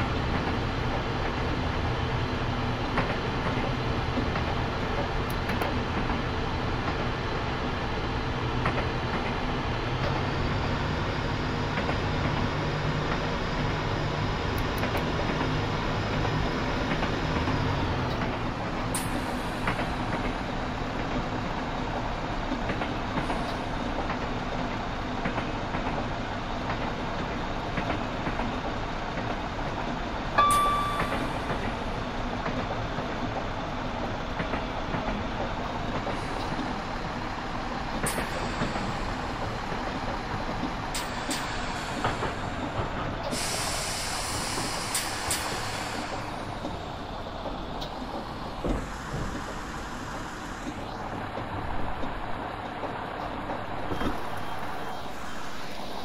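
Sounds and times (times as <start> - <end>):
moving train rumble: 0.0 - 56.0
short sharp high tone: 30.4 - 31.4
hiss: 38.0 - 39.8, 40.8 - 46.8, 48.6 - 51.0.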